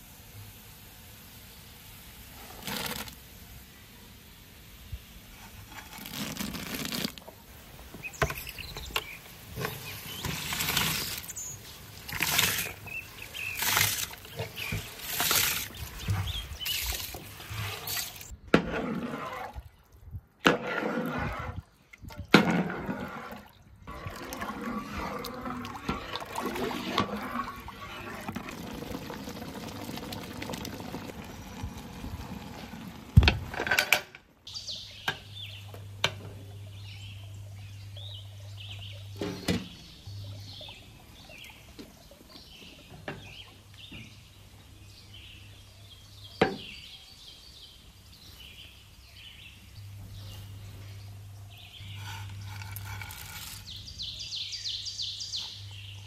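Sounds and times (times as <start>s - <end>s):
water bubbling and sloshing: 9.6s - 33.6s
food splashing into boiling water: 25.6s - 33.2s.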